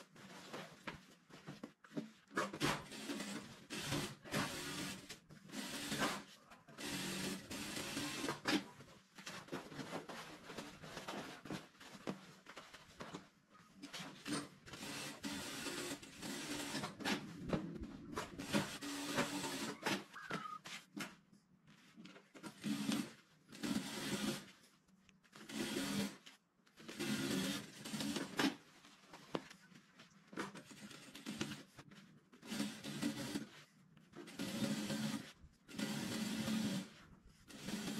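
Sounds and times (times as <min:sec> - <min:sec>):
sewing machine stitching: 0:02.3 - 0:08.8, 0:13.9 - 0:20.6, 0:22.3 - 0:24.5, 0:25.3 - 0:26.2, 0:26.8 - 0:28.6, 0:30.4 - 0:31.8, 0:32.4 - 0:33.6, 0:34.2 - 0:37.9
fabric rustling: 0:08.6 - 0:22.4.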